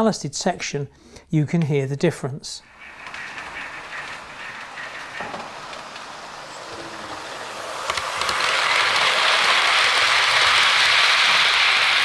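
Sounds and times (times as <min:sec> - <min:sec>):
model train rolling on track: 0:02.6 - 0:12.0.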